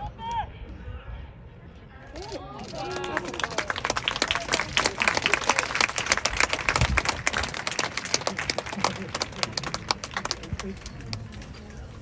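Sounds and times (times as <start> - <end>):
crowd applauding: 2.6 - 11.6.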